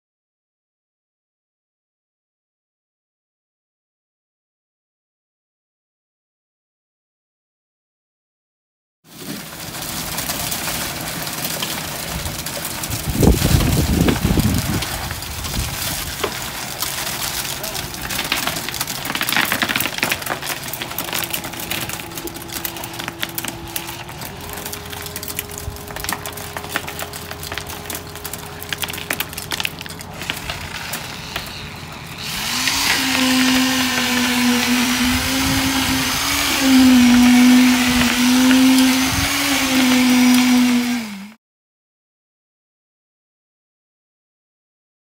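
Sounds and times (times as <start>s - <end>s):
wet concrete crackling: 9.1s - 40.9s
concrete vibrator motor whine: 9.4s - 41.4s.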